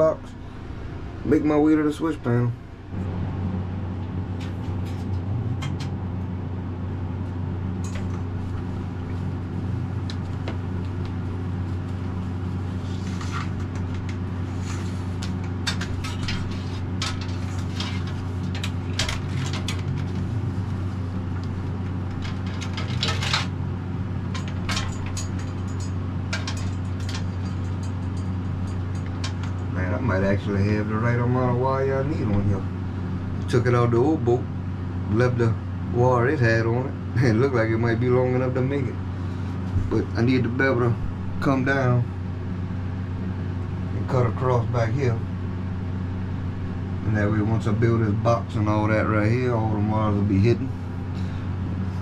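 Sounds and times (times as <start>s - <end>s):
steady low hum: 0.0s - 52.0s
wires clicking and rustling: 7.8s - 29.8s.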